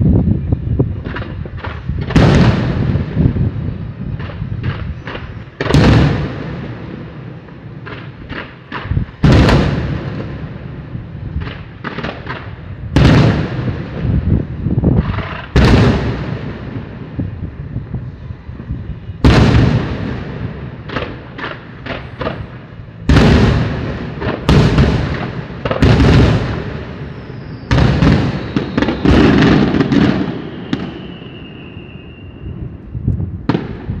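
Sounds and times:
firework shells booming: 1.0 - 17.9, 19.0 - 32.3
firework whistle: 14.0 - 34.0.

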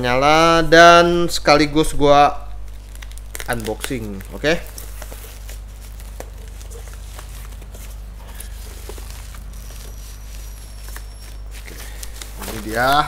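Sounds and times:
steady low hum: 0.0 - 13.0
plastic wrap crinkling: 1.8 - 13.0
small crackles: 2.6 - 13.0.

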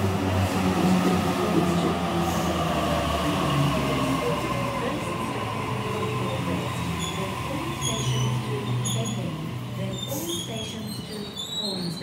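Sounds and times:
low train rumble: 0.0 - 12.0.

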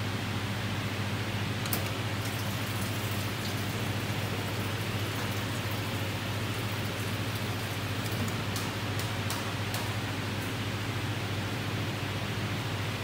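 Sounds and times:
low machine hum: 0.0 - 13.0
water stream splashing into glass: 2.2 - 9.1.

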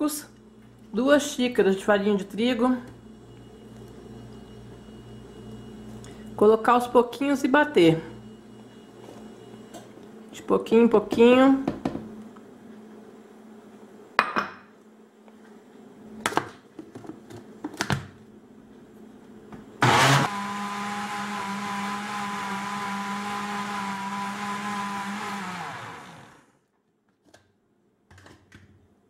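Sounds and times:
countertop blender running: 19.8 - 26.6.

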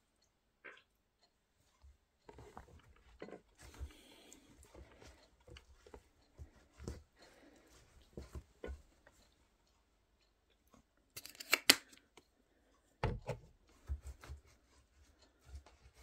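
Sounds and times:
footsteps on towel over carpet: 3.6 - 9.2.

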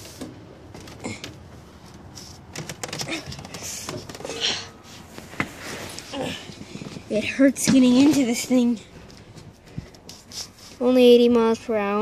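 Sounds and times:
footsteps on metal steps: 0.7 - 10.2.

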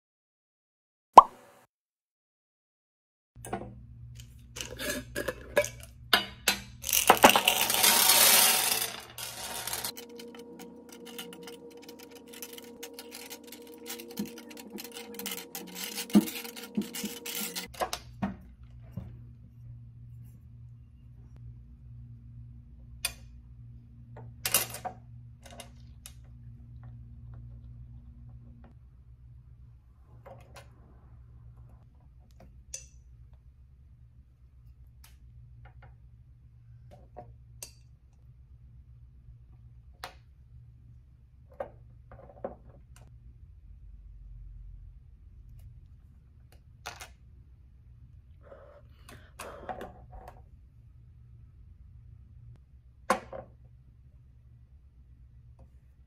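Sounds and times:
gems pouring onto glass table: 6.8 - 17.7.

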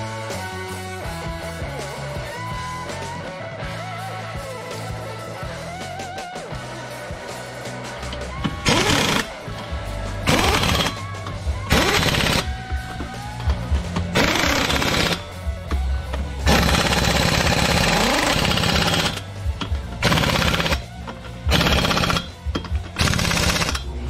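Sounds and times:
impact wrench rattling: 8.1 - 9.4, 10.2 - 24.0.

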